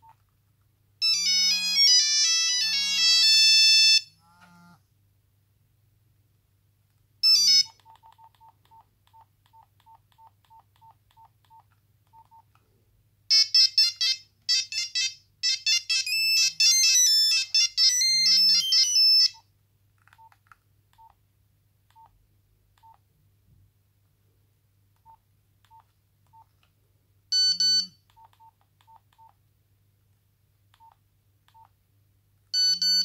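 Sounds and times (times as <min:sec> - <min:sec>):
mobile phone ringtone: 0:01.0 - 0:04.1, 0:07.2 - 0:07.8, 0:13.3 - 0:19.4, 0:27.3 - 0:28.0, 0:32.6 - 0:33.0.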